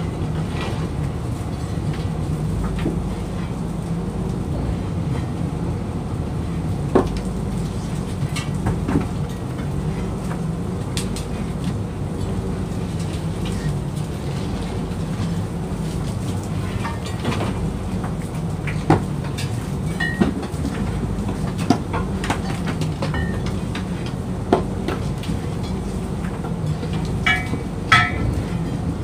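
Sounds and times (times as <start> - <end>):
boat motor droning: 23.1 - 29.0.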